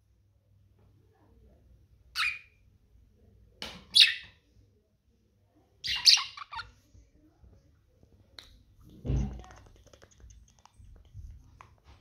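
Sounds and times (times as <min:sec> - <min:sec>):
budgerigar chirping: 0:02.2 - 0:02.6, 0:05.8 - 0:06.7.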